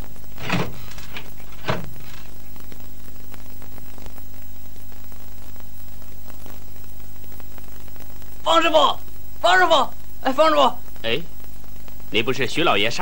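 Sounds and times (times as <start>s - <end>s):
electrical hum and hiss: 0.0s - 13.0s
short knocks: 0.4s - 2.3s.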